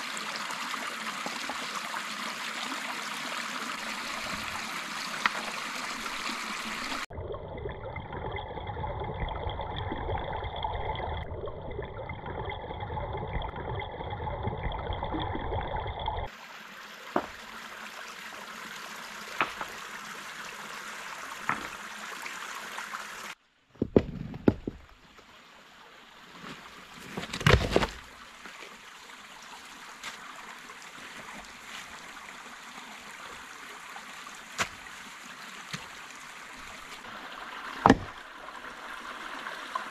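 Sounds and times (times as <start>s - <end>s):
stream trickling over stones: 0.0s - 39.9s
rocks knocking in streambed: 17.1s - 17.4s, 19.4s - 19.8s, 21.4s - 21.8s, 23.7s - 25.2s, 26.4s - 28.8s, 34.6s - 35.0s, 35.7s - 36.0s, 37.8s - 38.2s.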